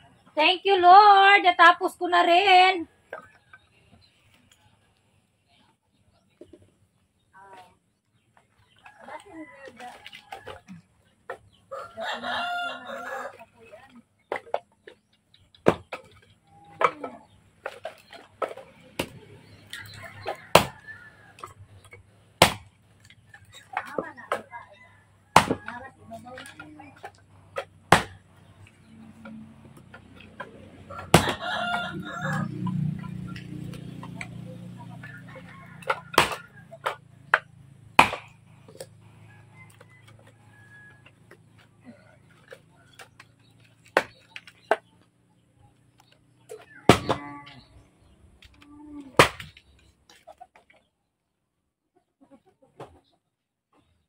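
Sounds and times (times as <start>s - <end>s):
rooster crowing: 11.7s - 13.3s, 30.8s - 32.7s, 39.2s - 41.2s
firewood chopping knocks: 15.6s - 16.1s, 20.5s - 20.8s, 22.4s - 22.7s, 25.3s - 25.7s, 27.6s - 28.2s, 31.0s - 31.4s, 35.9s - 38.4s, 46.9s - 47.2s, 49.2s - 49.6s
wood chopping: 15.6s - 20.8s, 22.4s - 24.5s, 25.3s - 25.8s, 26.4s - 32.0s, 35.8s - 38.9s, 42.3s - 44.9s, 46.5s - 47.2s, 49.2s - 49.7s
chicken clucking: 51.8s - 54.0s.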